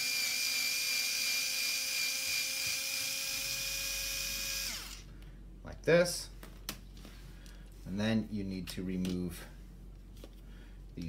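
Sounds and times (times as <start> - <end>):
cordless screwdriver motor whining: 0.0 - 5.1.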